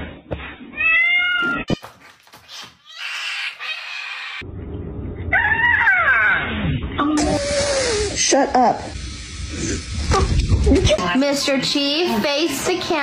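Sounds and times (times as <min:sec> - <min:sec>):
cat meowing: 0:00.8 - 0:01.8, 0:02.8 - 0:04.4.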